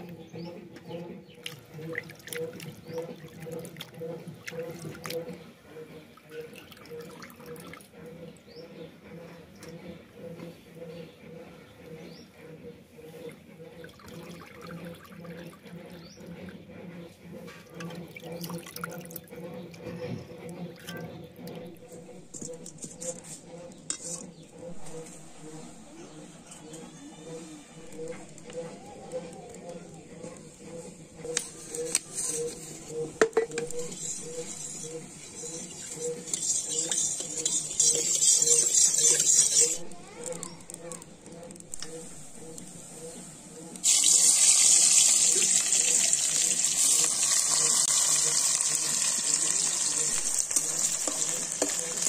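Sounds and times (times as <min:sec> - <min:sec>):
steady low hum: 0:00.0 - 0:45.0
metal ladle clinking and scraping pan: 0:23.9 - 0:24.3, 0:33.3 - 0:39.8
oil sizzling in pan: 0:43.8 - 0:52.0.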